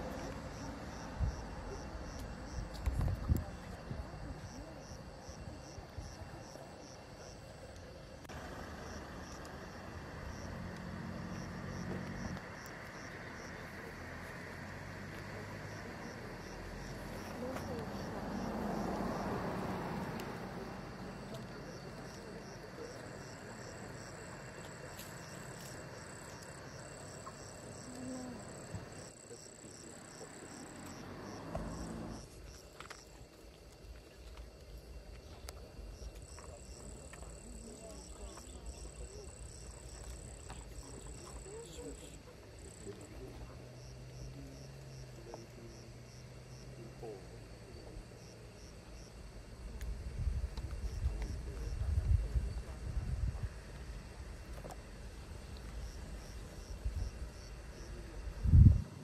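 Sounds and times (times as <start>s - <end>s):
faint insect chirping: 0.0s - 59.0s.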